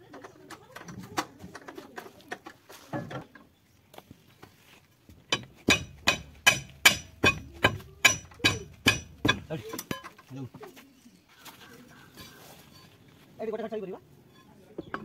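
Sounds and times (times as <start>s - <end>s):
hammer striking metal: 5.3s - 10.0s.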